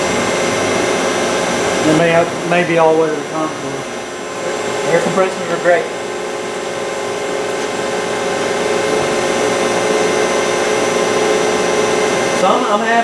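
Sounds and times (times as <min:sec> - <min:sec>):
milling machine whirring: 0:00.0 - 0:13.0.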